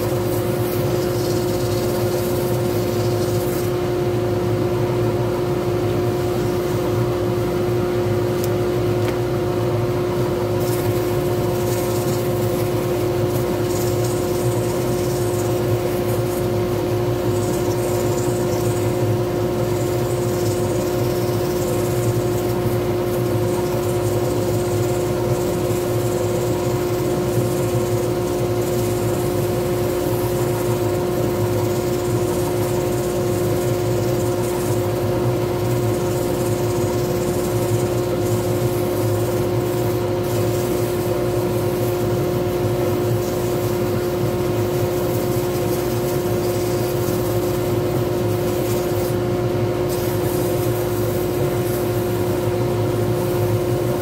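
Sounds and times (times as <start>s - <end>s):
sandpaper on spinning wood: 0.0s - 3.8s, 6.0s - 7.1s, 10.5s - 54.0s
wood lathe running: 0.0s - 3.8s, 10.6s - 49.2s.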